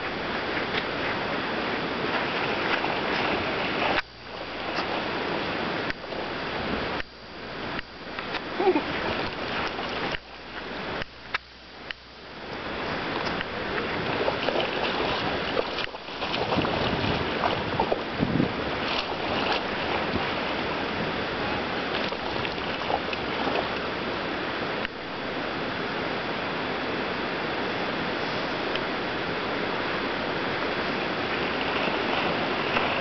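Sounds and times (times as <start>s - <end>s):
wind on microphone: 0.0s - 11.1s, 12.4s - 33.0s
dog splashing in water: 13.9s - 20.5s, 21.9s - 23.8s.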